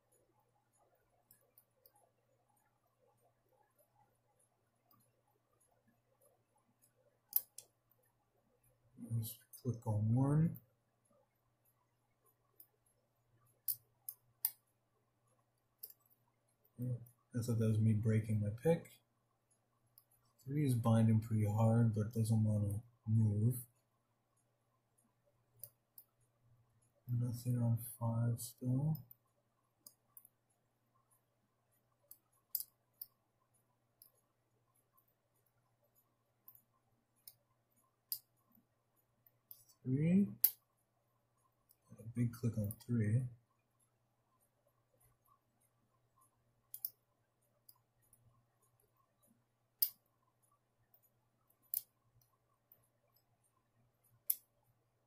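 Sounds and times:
faint steady hum: 0:00.0 - 0:55.0
faint ticking: 0:00.0 - 0:55.0
lock pick clicking on pins: 0:32.1 - 0:33.2, 0:46.7 - 0:47.0.

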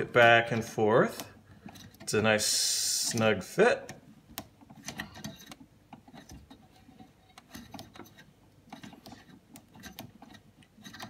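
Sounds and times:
small plastic clicks: 0:03.1 - 0:06.6
plastic and tubing rubbing: 0:04.3 - 0:11.0.

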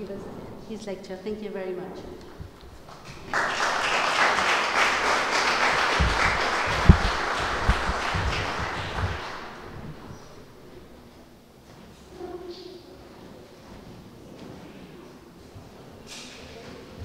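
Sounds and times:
audience applauding: 0:02.9 - 0:10.4
low thumps: 0:05.6 - 0:10.8.

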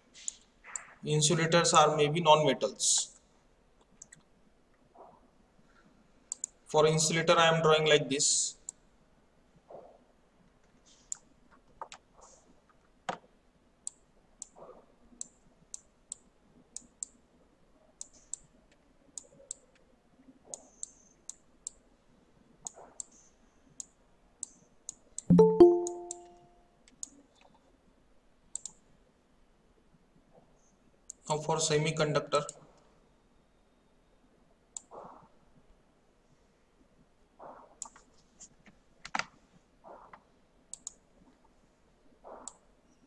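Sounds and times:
computer mouse clicking: 0:06.3 - 0:06.6, 0:15.2 - 0:17.2, 0:28.5 - 0:28.8, 0:37.8 - 0:38.2, 0:40.7 - 0:41.0
short loud chime: 0:25.3 - 0:26.4.

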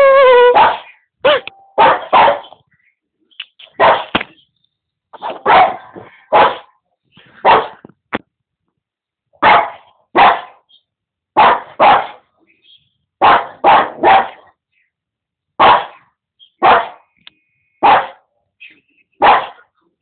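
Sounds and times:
dog barking: 0:00.4 - 0:02.6, 0:03.8 - 0:04.1, 0:05.2 - 0:06.8, 0:07.4 - 0:07.8, 0:09.4 - 0:10.6, 0:11.4 - 0:12.2, 0:13.2 - 0:14.5, 0:15.6 - 0:16.0, 0:16.6 - 0:17.1, 0:17.8 - 0:18.3, 0:19.2 - 0:19.7.

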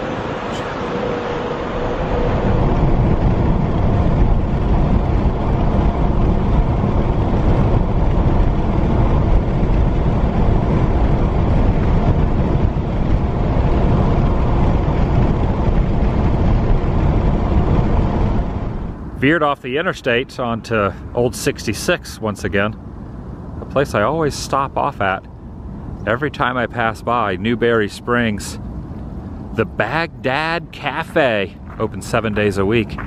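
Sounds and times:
car road and wind noise: 0:00.0 - 0:33.0.

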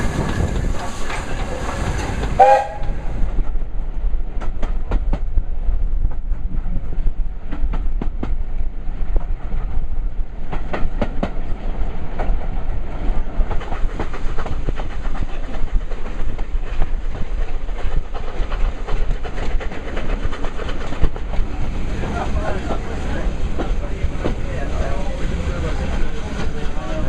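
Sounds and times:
train carriage rumble: 0:00.0 - 0:27.0
wheels clicking over rail joints: 0:10.4 - 0:27.0.

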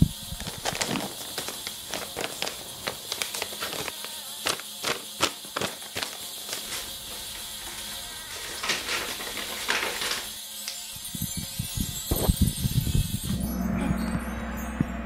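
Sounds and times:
paper envelope tearing: 0:00.4 - 0:07.0, 0:07.6 - 0:10.3.

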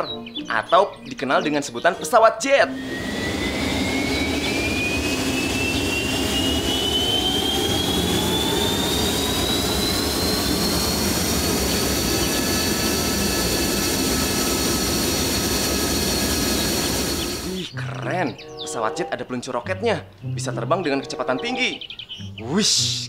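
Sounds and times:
jet engine roar with turbine whine: 0:02.0 - 0:17.7.

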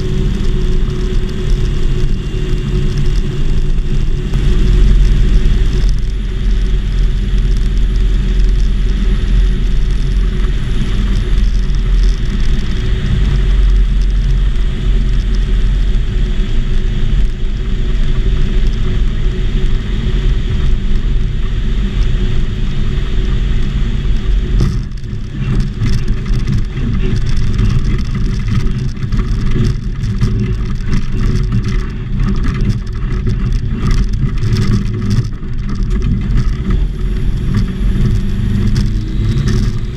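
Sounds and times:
small aircraft engine and propeller: 0:00.0 - 0:39.9
skis knocking and rattling on snow: 0:04.3 - 0:15.5, 0:24.4 - 0:36.9.

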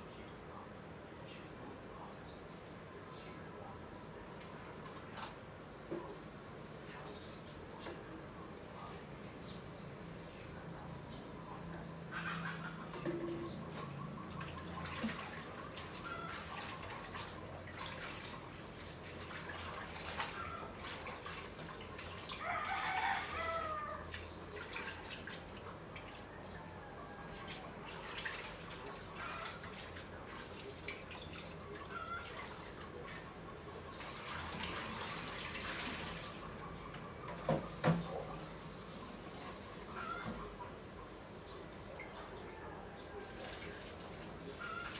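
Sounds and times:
tap water running and dripping: 0:13.0 - 0:33.1, 0:33.9 - 0:38.4
rooster crowing: 0:22.4 - 0:24.1.

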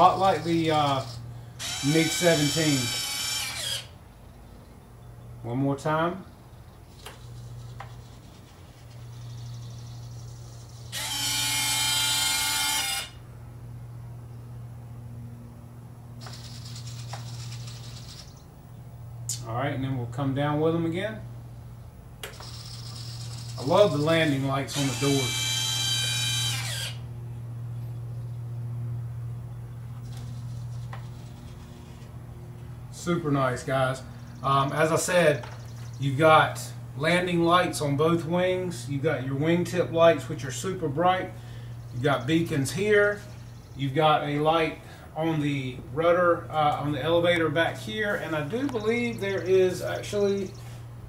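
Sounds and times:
servo buzz: 0:00.0 - 0:04.0, 0:06.9 - 0:13.3, 0:16.2 - 0:18.5, 0:22.2 - 0:27.2, 0:29.9 - 0:32.3
motor whine: 0:00.0 - 0:04.8, 0:06.5 - 0:19.4, 0:20.9 - 0:38.6
steady low hum: 0:00.0 - 0:51.0.

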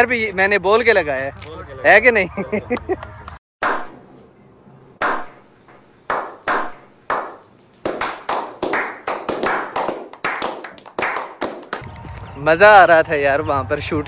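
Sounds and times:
men clapping: 0:06.1 - 0:12.0.

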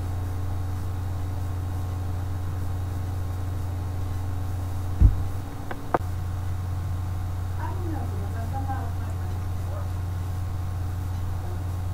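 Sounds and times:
faint constant tones: 0:00.0 - 0:11.9
steady low hum: 0:00.0 - 0:11.9
low thump: 0:05.0 - 0:05.9.

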